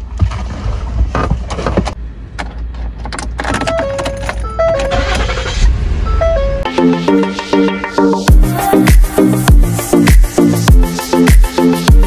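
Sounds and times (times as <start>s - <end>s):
car rumble: 0.0s - 6.8s
background music: 6.2s - 12.0s.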